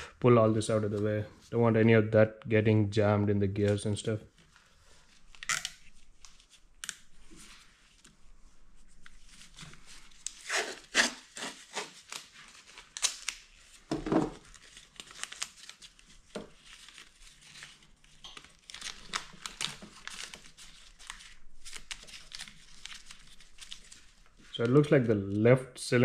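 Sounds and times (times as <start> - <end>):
short tearing sounds: 10.3 - 13.5
wiring rustling and crinkling: 11.9 - 24.9.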